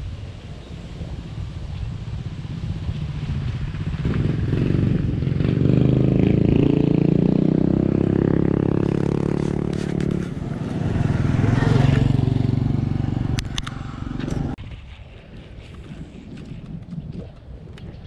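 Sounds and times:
small motorcycle engine: 3.2 - 14.6.

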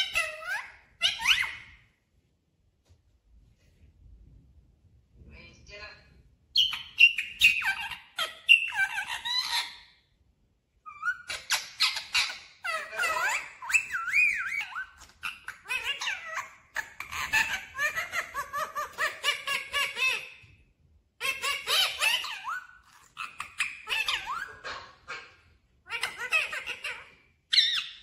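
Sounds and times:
parakeets chattering: 0.0 - 1.8, 6.6 - 9.9, 10.9 - 20.5, 21.2 - 28.0.

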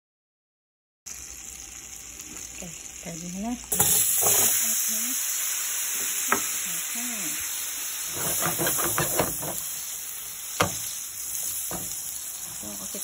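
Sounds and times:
potatoes sizzling in butter: 1.1 - 13.0.

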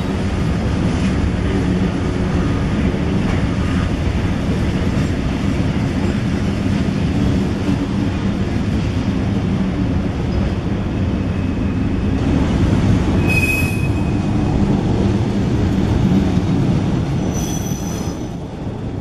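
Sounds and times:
freight train rumbling on rails: 0.0 - 19.0
high-pitched wheel squeal: 13.2 - 14.3, 17.2 - 18.3.

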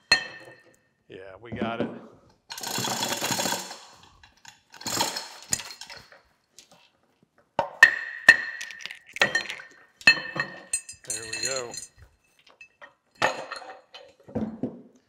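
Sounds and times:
steel chain rattling: 2.5 - 6.2, 8.3 - 14.1.

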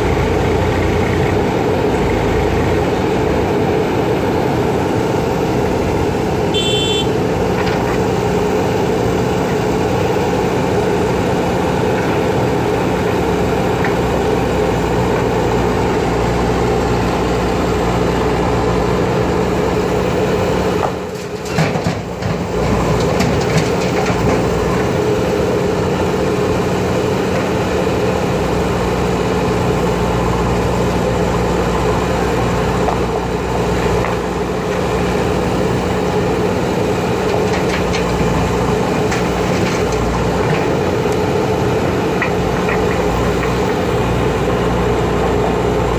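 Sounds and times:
diesel engine running under load: 0.0 - 45.9.

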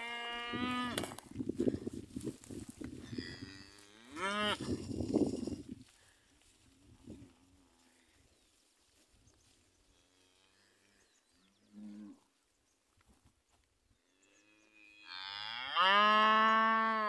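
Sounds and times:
cattle mooing: 3.1 - 4.8, 14.8 - 17.0.

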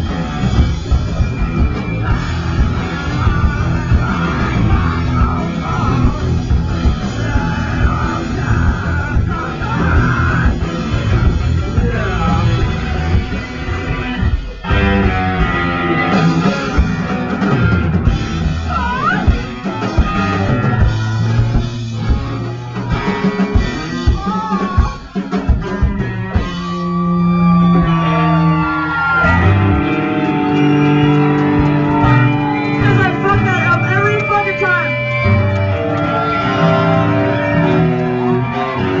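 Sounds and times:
live rock band playing: 0.0 - 39.0
electric guitar held notes: 25.6 - 39.0.

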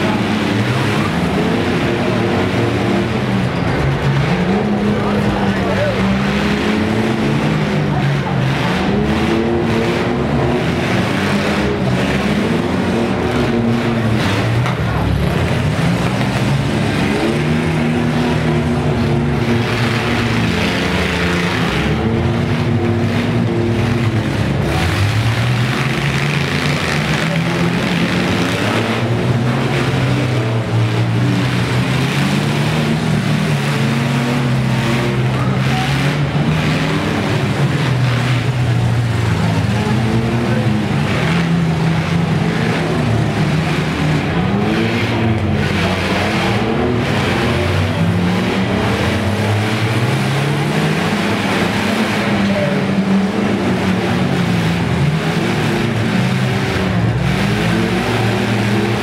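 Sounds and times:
engines revving together: 0.0 - 59.0.

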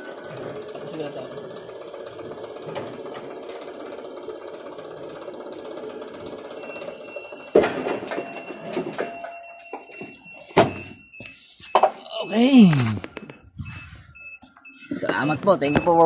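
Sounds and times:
hydraulic pump humming: 0.0 - 16.0
loud clunk: 7.5 - 9.4.

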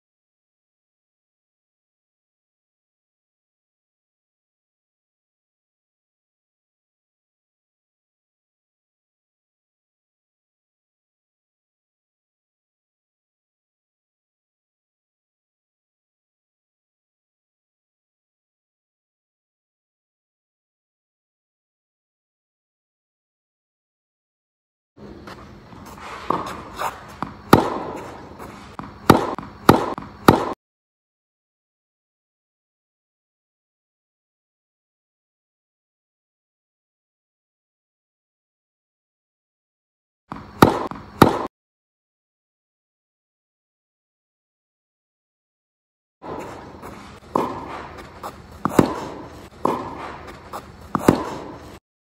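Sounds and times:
racket striking tennis ball: 25.0 - 30.6, 40.3 - 41.5, 46.2 - 51.8
tennis ball bouncing: 25.0 - 30.6, 40.3 - 41.5, 46.2 - 51.8.

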